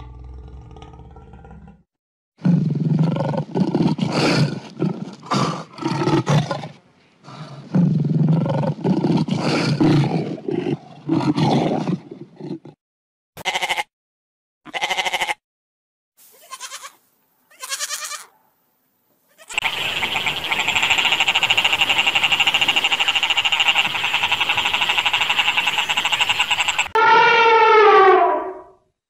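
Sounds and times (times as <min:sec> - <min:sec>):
lion roaring: 0:00.0 - 0:01.8
goat bleat: 0:13.4 - 0:13.9, 0:14.7 - 0:15.4, 0:16.3 - 0:18.3, 0:19.3 - 0:19.6.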